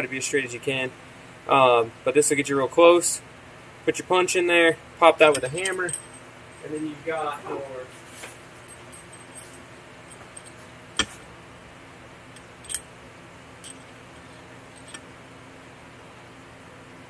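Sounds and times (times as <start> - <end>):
hand tools clinking on metal: 5.3 - 6.9, 8.7 - 10.5, 12.4 - 12.8, 13.6 - 15.0.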